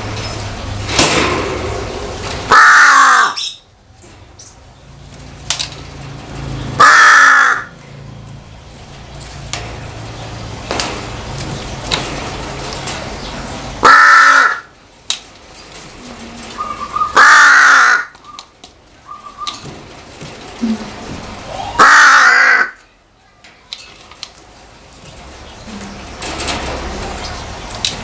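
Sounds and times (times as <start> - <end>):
crow cawing: 2.5 - 3.5, 6.8 - 7.7, 13.8 - 14.7, 16.6 - 18.2, 21.8 - 22.8.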